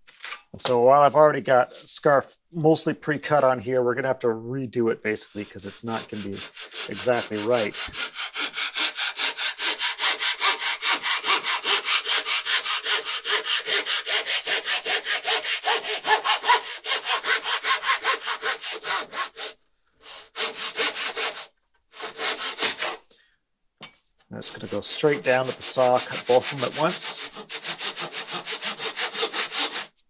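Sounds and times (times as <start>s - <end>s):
hand saw cutting plywood: 5.1s - 23.1s, 24.4s - 30.0s.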